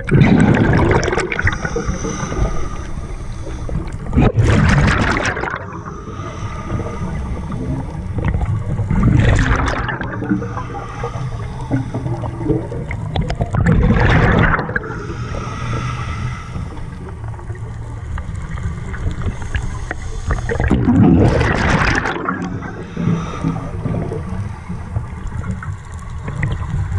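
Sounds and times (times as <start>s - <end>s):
exhaled bubbles gurgling underwater: 0.0s - 26.9s
steady low rumble: 0.0s - 26.9s
faint hiss: 1.4s - 4.1s, 5.6s - 9.3s.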